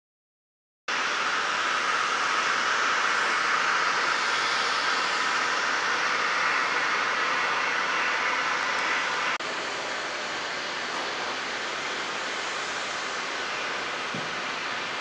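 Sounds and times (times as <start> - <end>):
steady rushing noise: 0.9 - 15.0.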